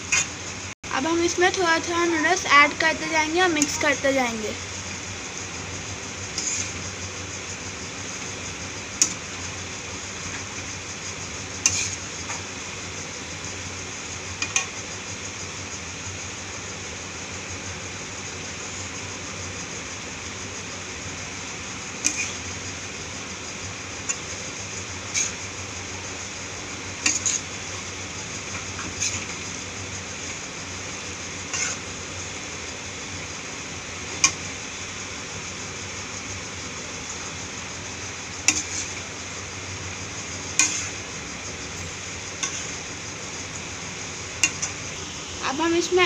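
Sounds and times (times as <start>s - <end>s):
steady hiss: 0.0s - 46.0s
spatula scraping a steel pan: 6.3s - 6.8s, 11.6s - 12.0s, 22.0s - 22.4s, 25.1s - 25.4s, 27.0s - 27.5s, 28.8s - 29.4s, 31.5s - 31.9s, 38.5s - 39.0s, 40.6s - 41.0s, 42.4s - 42.8s.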